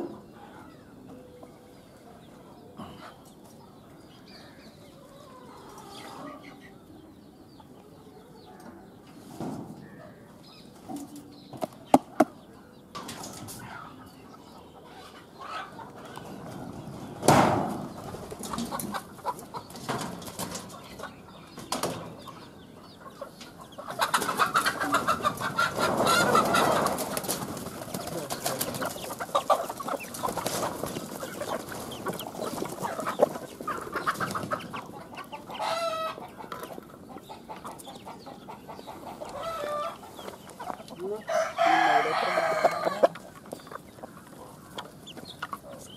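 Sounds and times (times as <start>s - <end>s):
chickens clucking: 0.0s - 45.9s
wing flapping: 25.8s - 33.1s.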